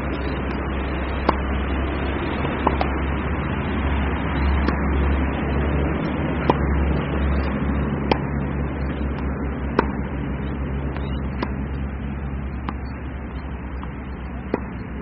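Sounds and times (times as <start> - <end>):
steady low rumble: 0.0 - 15.0
tennis ball struck by racket: 0.1 - 3.2, 4.5 - 5.1, 6.4 - 8.4, 9.1 - 10.3, 10.9 - 11.9, 12.6 - 13.0, 13.8 - 14.8.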